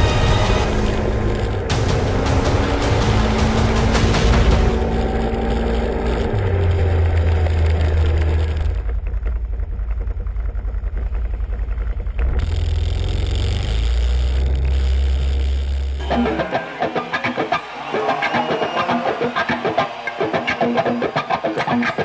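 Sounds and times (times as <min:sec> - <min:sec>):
quad bike engine running: 0:00.0 - 0:16.1.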